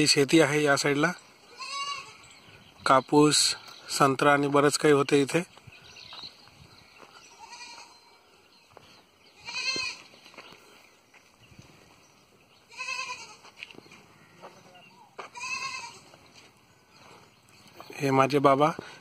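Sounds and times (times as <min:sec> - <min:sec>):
goats bleating: 0:01.5 - 0:02.3, 0:07.4 - 0:08.1, 0:09.4 - 0:10.1, 0:12.7 - 0:16.2.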